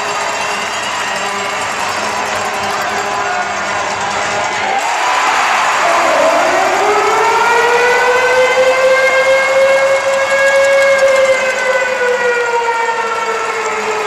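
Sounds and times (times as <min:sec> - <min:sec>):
crowd cheering: 0:00.0 - 0:14.0
goal siren wailing: 0:04.6 - 0:14.0.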